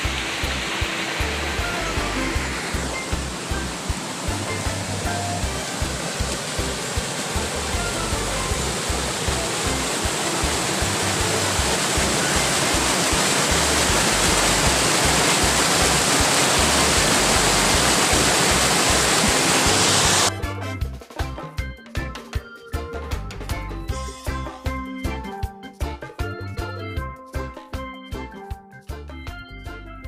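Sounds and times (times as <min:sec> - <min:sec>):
spring water rushing over rocks: 0:00.0 - 0:20.3.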